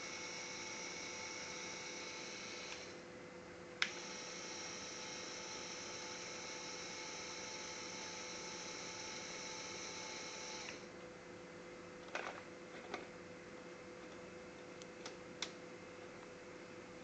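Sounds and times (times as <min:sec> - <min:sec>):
small electric motor whining: 0:00.0 - 0:03.0, 0:03.9 - 0:10.9.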